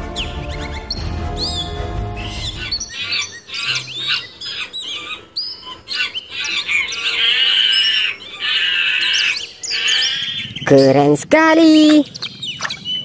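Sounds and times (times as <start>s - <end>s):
chimpanzees squealing: 0.4s - 10.6s.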